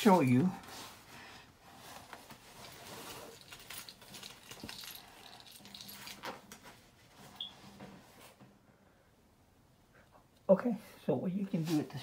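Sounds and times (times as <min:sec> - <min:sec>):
handling rustling: 0:00.0 - 0:08.4.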